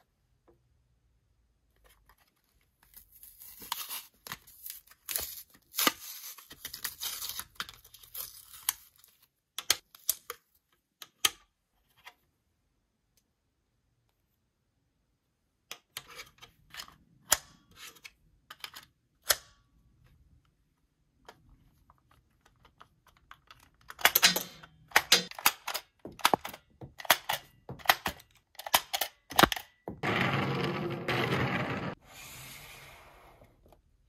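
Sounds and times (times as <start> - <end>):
small hard parts clicking and rattling: 22.4 - 30.0.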